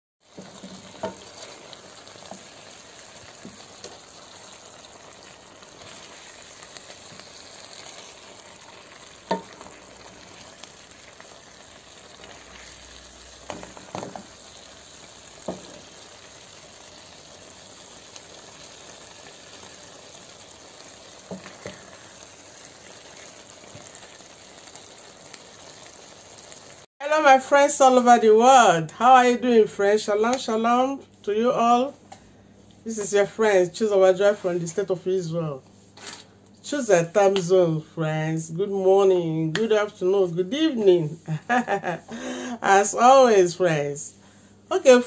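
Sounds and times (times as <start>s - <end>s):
food sizzling in a frying pan: 0.2s - 31.0s.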